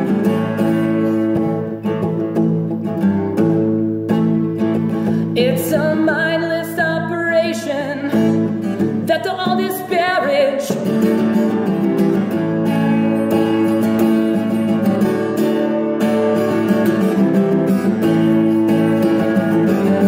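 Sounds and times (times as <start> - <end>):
acoustic guitar strumming: 0.0 - 20.0.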